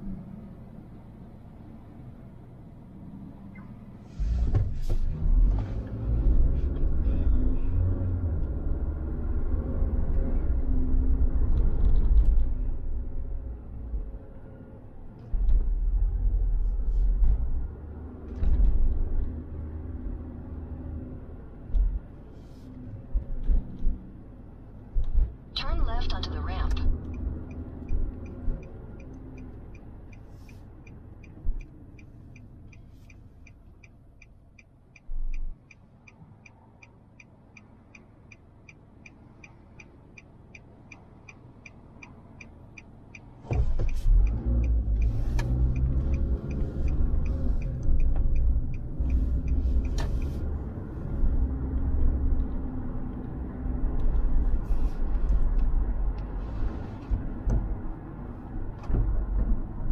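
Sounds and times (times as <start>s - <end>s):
engine and road rumble: 0.0s - 59.9s
turn signal ticking: 23.0s - 59.9s.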